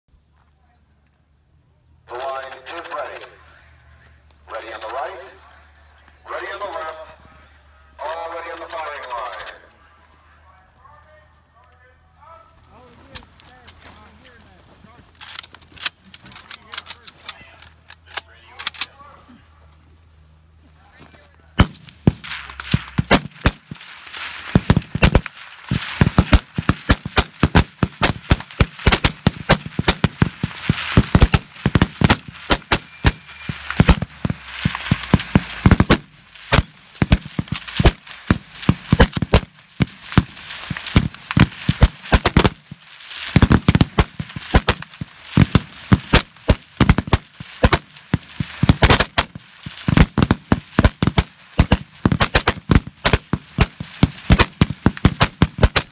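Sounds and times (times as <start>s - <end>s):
rifles firing rapidly: 21.6s - 55.9s.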